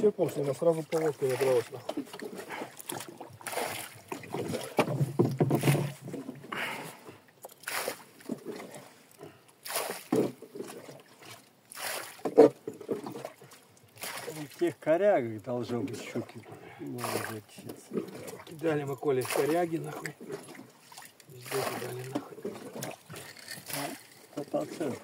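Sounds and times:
gear knocking against boat hull: 4.7s - 6.1s.

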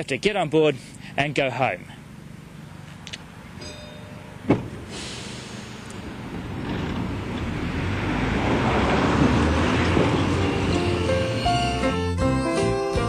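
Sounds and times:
tram rumbling: 2.0s - 13.0s
sharp clunk: 3.6s - 5.5s.

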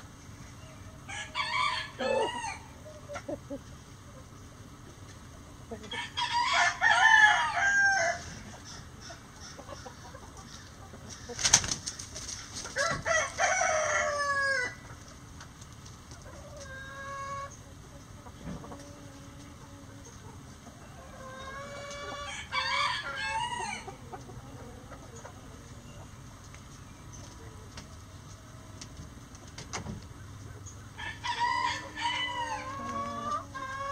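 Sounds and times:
roosters crowing: 0.6s - 3.6s, 5.7s - 15.0s, 18.6s - 26.0s, 30.8s - 33.9s
low chicken calls: 0.8s - 3.5s, 31.0s - 33.9s.

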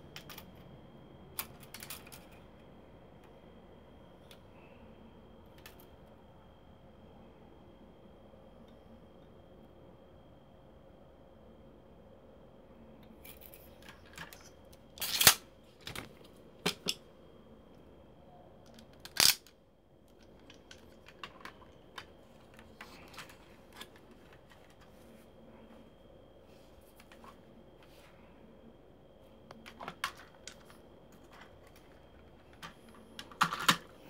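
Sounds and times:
plastic toy parts clicking: 13.3s - 16.1s, 18.6s - 19.5s.

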